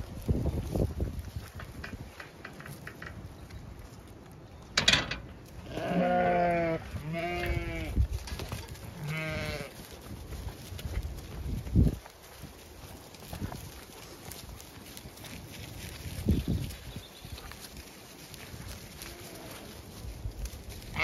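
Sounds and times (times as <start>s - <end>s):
sheep bleating: 5.7s - 8.0s, 9.0s - 9.8s.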